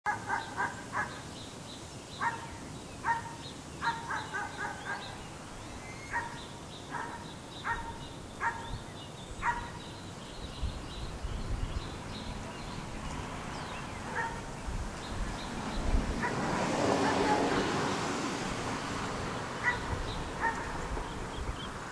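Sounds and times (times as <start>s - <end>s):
small birds chirping: 0.1s - 18.2s, 19.0s - 21.9s
distant animal calls: 2.2s - 8.8s, 9.4s - 9.9s, 14.0s - 14.6s, 16.2s - 18.0s, 19.5s - 21.8s.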